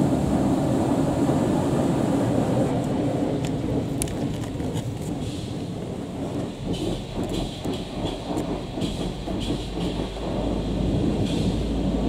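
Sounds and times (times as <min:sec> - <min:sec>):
car wash water jets rumbling: 0:00.0 - 0:12.0.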